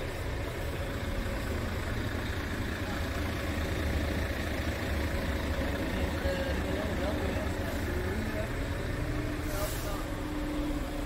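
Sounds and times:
diesel truck engine idling: 0:00.0 - 0:11.0.

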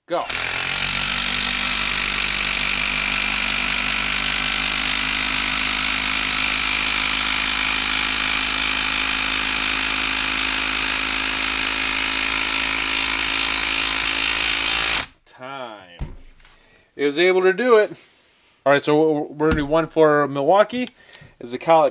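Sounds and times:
impact driver hammering: 0:00.3 - 0:15.1, 0:19.5 - 0:20.0.

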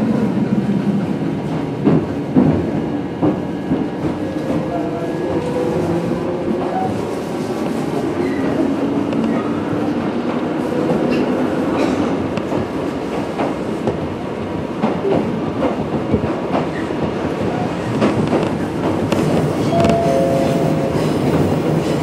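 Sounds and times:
electric train rumbling: 0:00.0 - 0:22.0.

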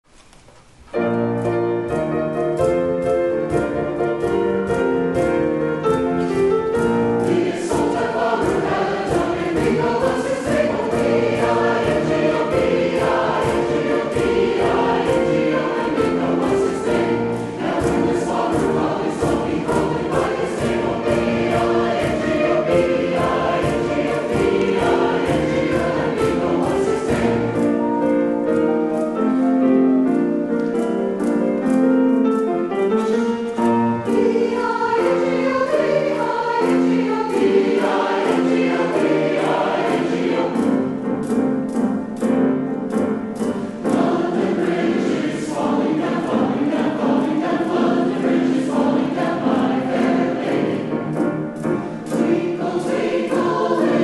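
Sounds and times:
piano accompaniment: 0:00.0 - 0:54.0
percussion beat: 0:01.8 - 0:29.2, 0:33.4 - 0:48.0
men's chorus singing: 0:07.2 - 0:27.8, 0:34.1 - 0:41.0, 0:43.8 - 0:51.0, 0:52.1 - 0:54.0.

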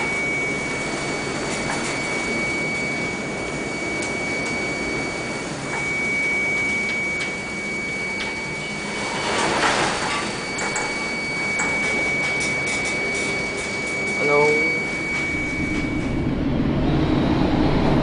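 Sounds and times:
constant high whine: 0:00.0 - 0:18.0
wind and heavy sea rushing: 0:14.7 - 0:18.0.

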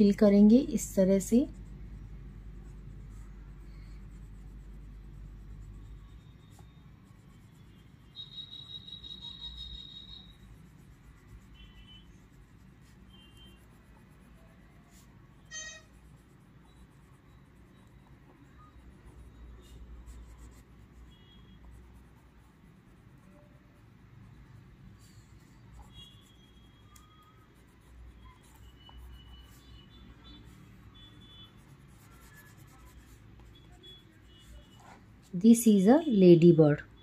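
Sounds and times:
crayon rubbing on paper: 0:00.6 - 0:17.7, 0:25.0 - 0:35.5
crayon high-pitched squeak: 0:03.1 - 0:22.3, 0:25.0 - 0:35.4.

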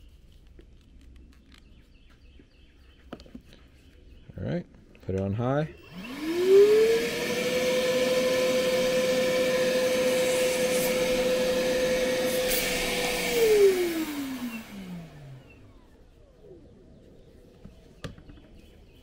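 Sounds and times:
vacuum motor whine: 0:05.8 - 0:16.7.

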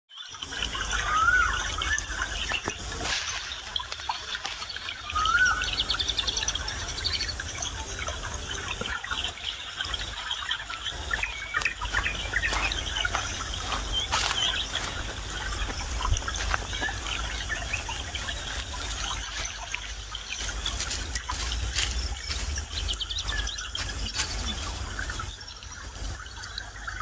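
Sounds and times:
forest birds chirping: 0:00.1 - 0:27.0
dry leaves crackling underfoot: 0:02.7 - 0:05.7, 0:11.0 - 0:25.3.

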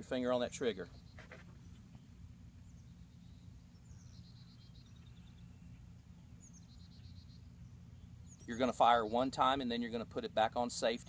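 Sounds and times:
low outdoor rumble: 0:00.0 - 0:11.0
faint bird chirps: 0:00.8 - 0:09.3.

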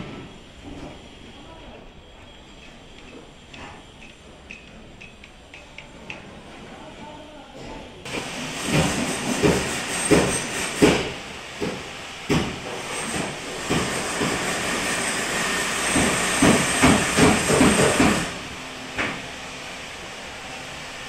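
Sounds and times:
construction knocks and bangs: 0:08.1 - 0:14.8, 0:15.9 - 0:18.4.

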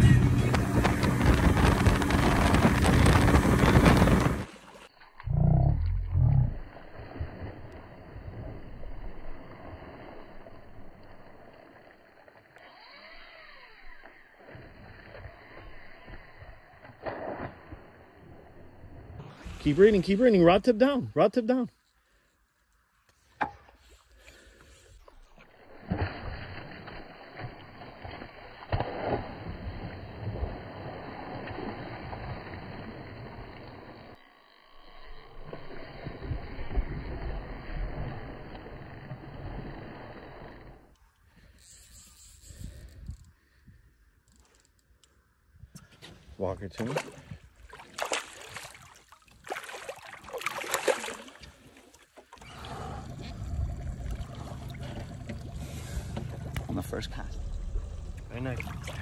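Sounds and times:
fish splashing in water: 0:46.9 - 0:53.1.

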